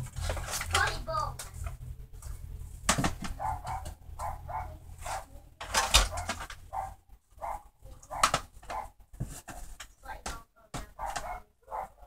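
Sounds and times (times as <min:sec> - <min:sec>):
sharp knocks of handled objects: 0:02.8 - 0:04.4
dog barking: 0:03.3 - 0:09.0, 0:11.0 - 0:12.0.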